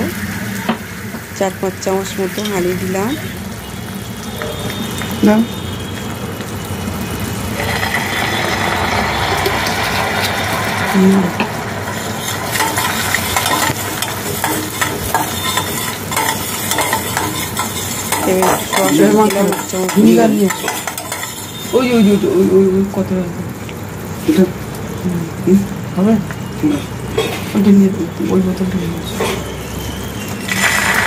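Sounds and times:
food sizzling in hot oil: 0.0 - 31.0
metal spatula scraping pan: 7.6 - 21.7.

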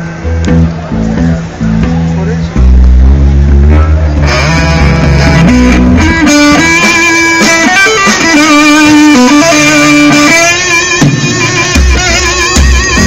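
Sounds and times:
low bass tone: 0.0 - 6.9
amplified electric guitar notes: 0.0 - 13.0.

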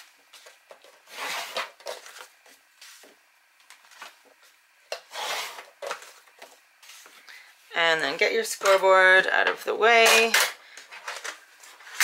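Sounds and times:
bone folder scraping on cardstock: 5.1 - 5.7.

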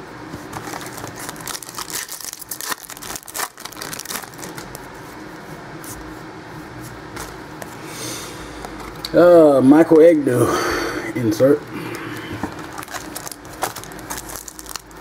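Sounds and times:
foil wrapper tearing and crinkling: 0.5 - 4.8, 12.5 - 15.0.

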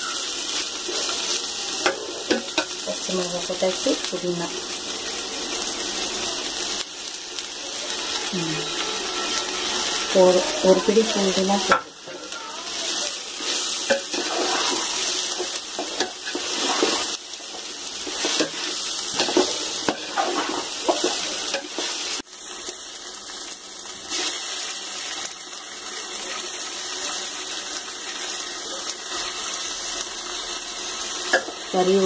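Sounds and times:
onions sizzling in oil: 0.0 - 32.0
metal ladle scraping pot: 13.4 - 17.2.

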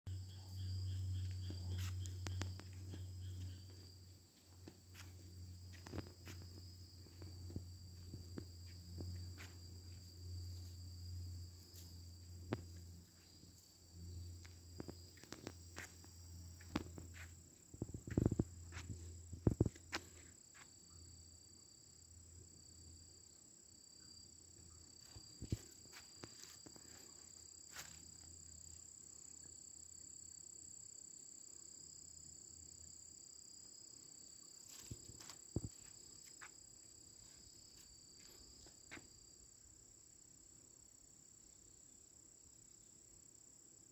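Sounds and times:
high-pitched insect song: 0.1 - 43.9
soft scuffs and clicks: 1.2 - 3.8, 14.4 - 20.7.

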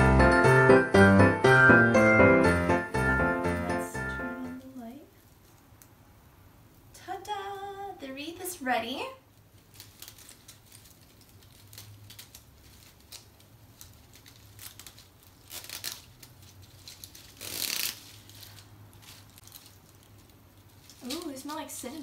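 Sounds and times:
netted bag rustling: 9.4 - 22.0
pine cones shifting: 9.4 - 22.0.

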